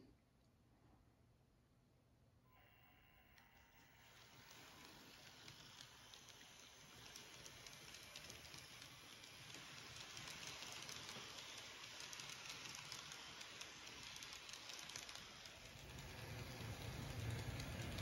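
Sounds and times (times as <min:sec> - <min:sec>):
model train coaches rolling hiss: 0:03.9 - 0:18.0.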